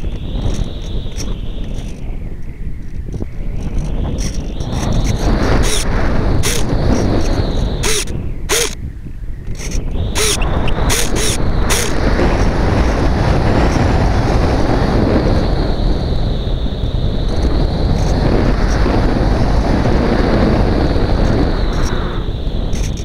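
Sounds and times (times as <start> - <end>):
sharp clicks: 0.0 - 8.8, 9.4 - 12.5, 21.2 - 23.0
faint high whine: 0.0 - 23.0
wind rush: 0.0 - 23.0.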